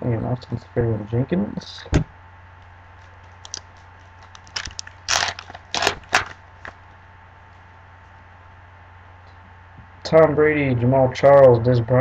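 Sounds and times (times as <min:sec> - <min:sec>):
wrapper crinkling and tearing: 0:03.4 - 0:06.8.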